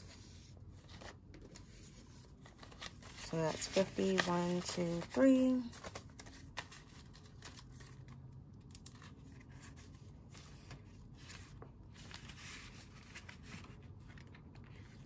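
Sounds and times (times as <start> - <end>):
paper bills rustling: 0.0 - 8.2.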